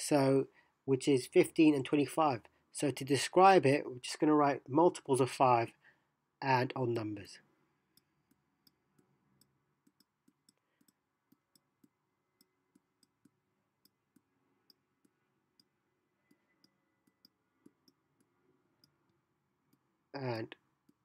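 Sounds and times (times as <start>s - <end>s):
stylus tapping on a tablet: 7.9s - 19.9s.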